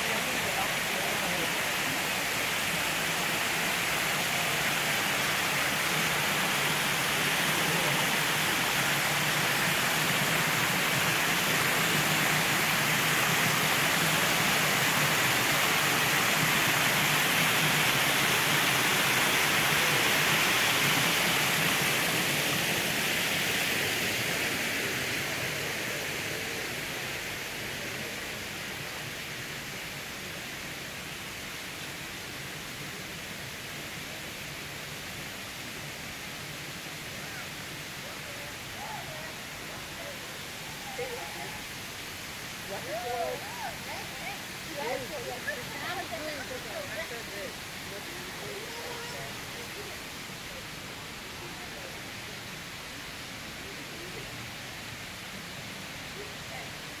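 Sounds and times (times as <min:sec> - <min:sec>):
water spilling over rocks: 0:00.0 - 0:30.8.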